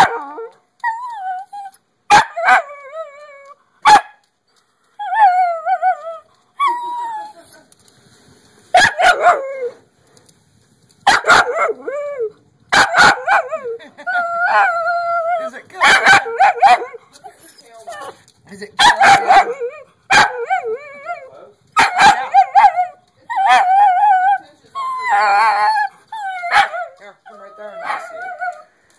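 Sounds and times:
dog barking: 0:02.1 - 0:02.6, 0:03.8 - 0:04.2, 0:08.8 - 0:09.4, 0:11.1 - 0:11.8, 0:12.7 - 0:13.5, 0:15.8 - 0:17.0, 0:18.8 - 0:20.6, 0:21.8 - 0:22.8, 0:26.5 - 0:26.9
dog whining: 0:05.0 - 0:07.6, 0:13.0 - 0:18.2, 0:19.0 - 0:28.7.

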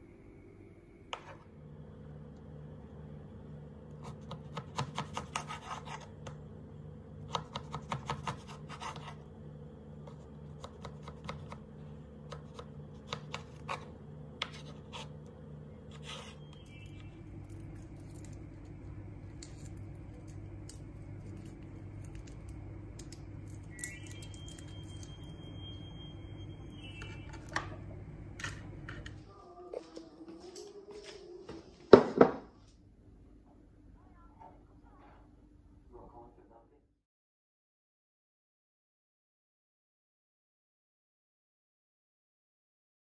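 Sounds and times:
steady low hum: 0:00.0 - 0:37.0
knife cutting on wooden board: 0:04.3 - 0:06.1.

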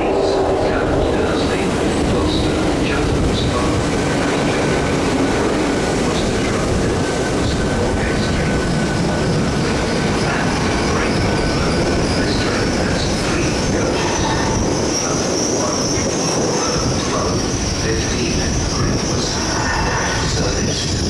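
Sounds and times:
train wheels rumbling on rail: 0:00.0 - 0:21.0
high-pitched squeal: 0:07.4 - 0:21.0.

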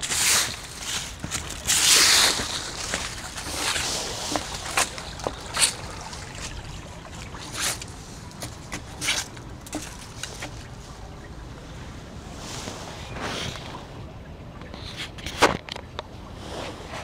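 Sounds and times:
brook trickling over stones: 0:00.0 - 0:11.6.

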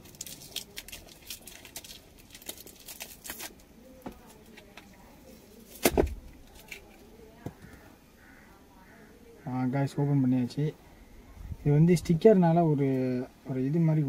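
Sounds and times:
plastic wrap ripping: 0:00.0 - 0:04.6
plastic wrap crinkling: 0:00.0 - 0:07.0.

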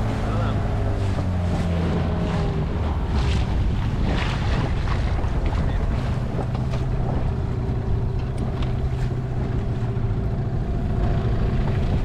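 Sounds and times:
outboard motor humming: 0:00.0 - 0:12.0.

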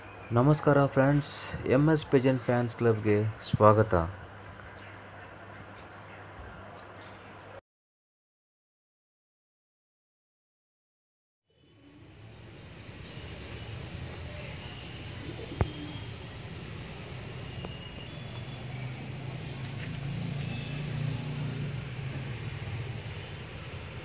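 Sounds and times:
low traffic rumble: 0:00.0 - 0:07.6, 0:11.6 - 0:24.0
faint bird chirps: 0:11.5 - 0:21.1.

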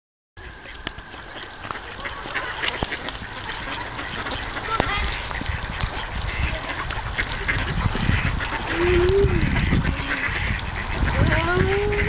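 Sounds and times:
ducks quacking: 0:00.4 - 0:12.0.

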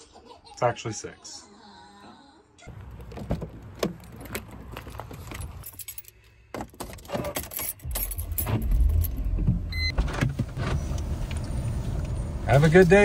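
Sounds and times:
car keys jangling: 0:02.7 - 0:09.4
car engine starting: 0:07.5 - 0:13.0.

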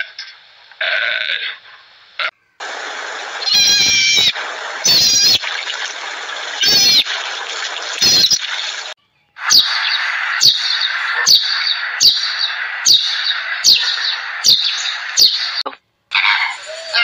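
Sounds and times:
steady hiss: 0:00.0 - 0:15.6
marmots squeaky calls: 0:03.4 - 0:05.5, 0:06.6 - 0:07.2, 0:08.0 - 0:08.6, 0:09.4 - 0:15.6.

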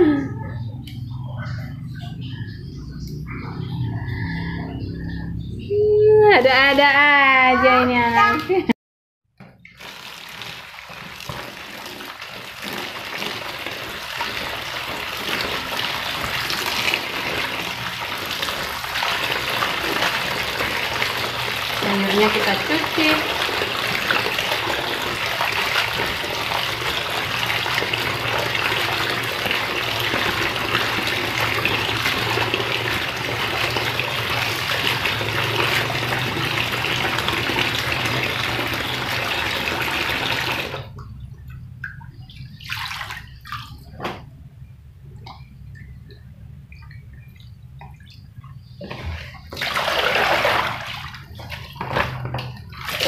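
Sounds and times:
tap running into basin: 0:09.4 - 0:44.3, 0:45.2 - 0:53.0
hands rinsing leaves in water: 0:09.6 - 0:40.9, 0:45.4 - 0:53.0.

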